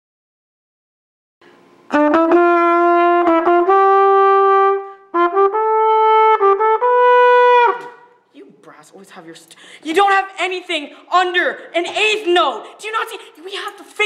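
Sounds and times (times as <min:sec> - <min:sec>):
trumpet melody: 0:01.9 - 0:08.2.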